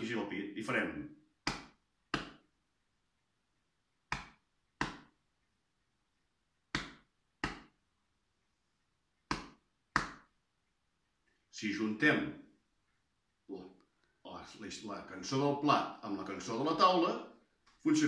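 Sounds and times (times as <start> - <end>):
hand patting chest: 1.4 - 2.5, 4.0 - 5.2, 6.7 - 7.8, 9.2 - 10.3.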